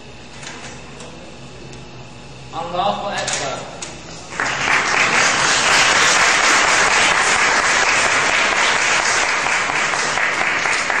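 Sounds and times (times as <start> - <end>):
audience applauding: 4.3 - 11.0.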